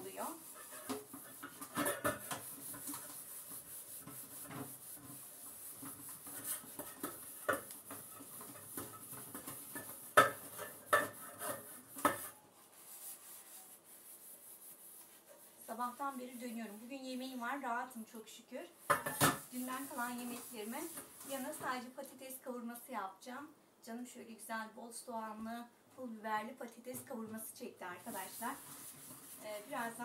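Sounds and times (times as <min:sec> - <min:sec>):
sponge scrubbing metal teapot: 0:00.0 - 0:17.0, 0:28.0 - 0:30.0.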